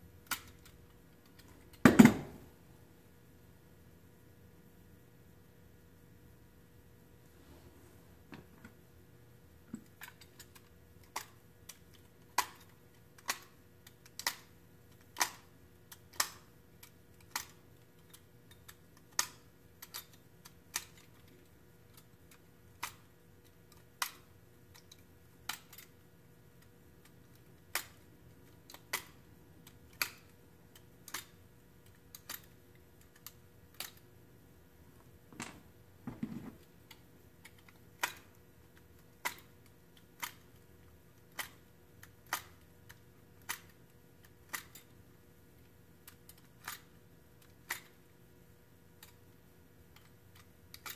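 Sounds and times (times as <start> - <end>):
objects set down on wooden workbench: 35.3 - 36.6.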